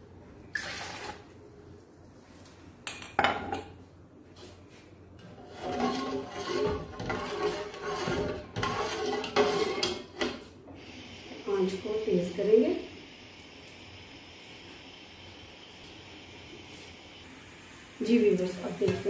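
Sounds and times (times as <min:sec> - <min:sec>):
spoon scraping inside pot: 0:05.2 - 0:10.4.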